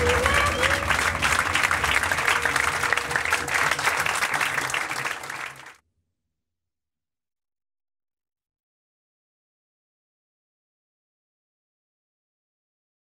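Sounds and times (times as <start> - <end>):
music: 0.0 - 4.8
audience applauding: 0.0 - 5.8.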